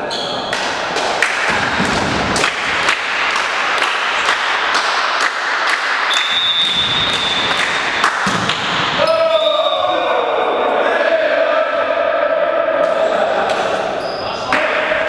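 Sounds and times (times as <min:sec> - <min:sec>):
sharp claps or beats: 0:00.5 - 0:09.1
crowd cheering and shouting: 0:06.0 - 0:15.0
long high whistle: 0:06.1 - 0:07.6.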